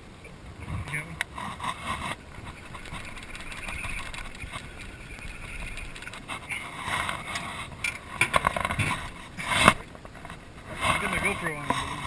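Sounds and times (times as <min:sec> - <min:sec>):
fishing reel whirring and clicking: 0:02.1 - 0:06.4.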